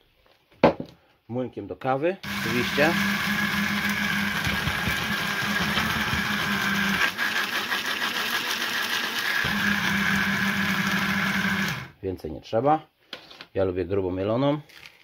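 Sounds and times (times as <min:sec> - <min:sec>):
coffee grinder motor whine: 0:02.2 - 0:12.0.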